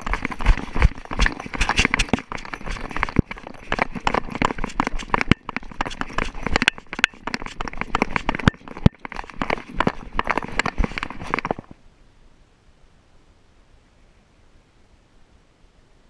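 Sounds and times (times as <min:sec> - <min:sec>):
dog paws on gravel: 0:00.0 - 0:11.7.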